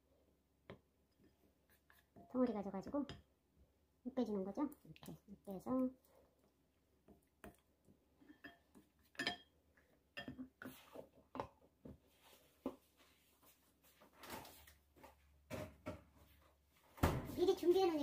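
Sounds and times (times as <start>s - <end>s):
wooden spoons clinking glass bowl: 8.2s - 10.8s.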